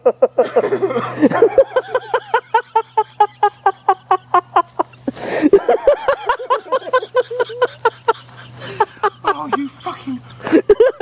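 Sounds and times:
hysterical laughter: 0.0s - 11.0s
wheezing in-breath: 5.1s - 5.6s.

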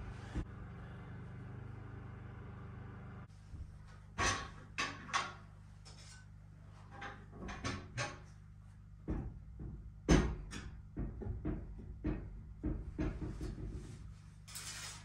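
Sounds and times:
wood stove clunking on hearth: 4.2s - 5.5s, 6.9s - 8.3s.

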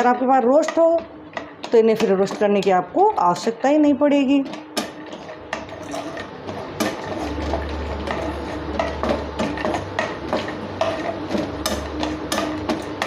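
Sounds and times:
spatula scraping nuts in a pan: 4.7s - 13.0s.

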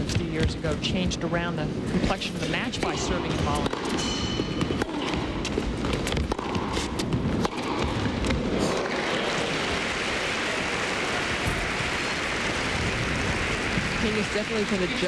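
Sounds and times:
tennis racket hitting ball: 2.6s - 9.0s
murmuring indoor crowd: 7.9s - 15.0s
crowd applause: 8.5s - 15.0s.

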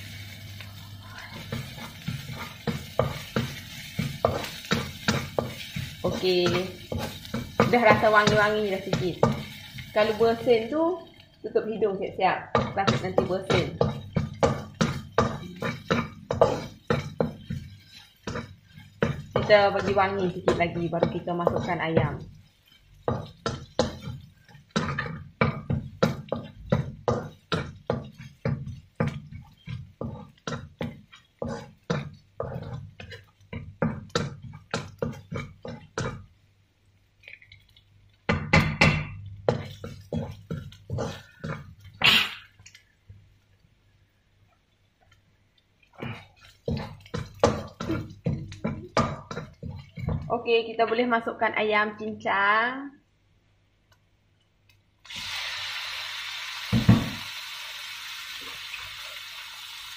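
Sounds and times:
metal spatula scraping a wok: 0.0s - 10.7s, 13.0s - 33.3s, 39.5s - 42.3s.

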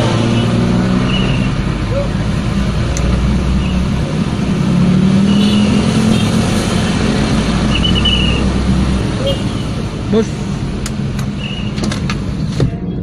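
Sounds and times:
car engine and road noise: 0.0s - 13.0s.

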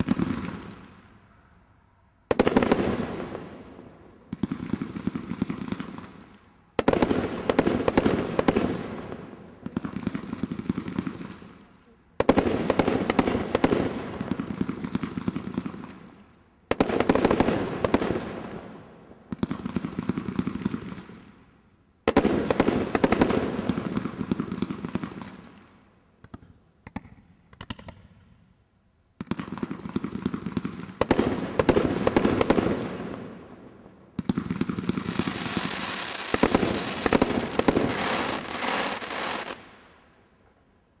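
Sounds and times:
dense firework crackling: 29.2s - 39.9s.

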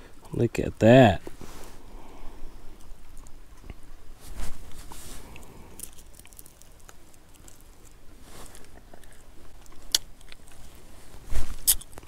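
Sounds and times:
clicks and rustles of picking fish: 2.8s - 12.0s
person chewing: 5.2s - 10.8s, 11.4s - 12.0s.

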